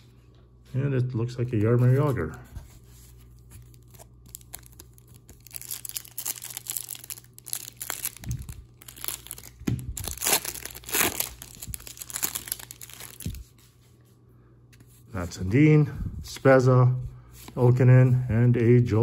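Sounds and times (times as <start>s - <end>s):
foil wrapper crinkling and tearing: 3.6s - 13.4s.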